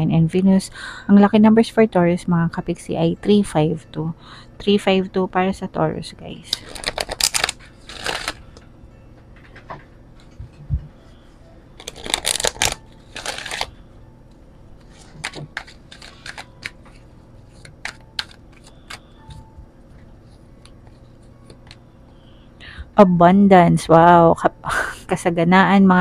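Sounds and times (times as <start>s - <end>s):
cards being shuffled: 6.5s - 8.4s, 11.8s - 13.7s, 14.8s - 19.5s.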